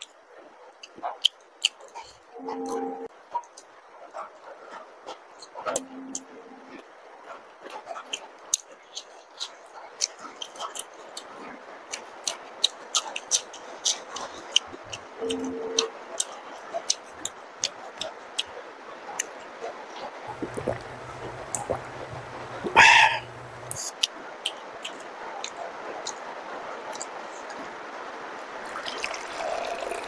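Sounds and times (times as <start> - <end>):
person chewing food: 20.3 - 23.9, 28.7 - 30.0
wet mouth clicks and lip smacks: 20.3 - 24.1.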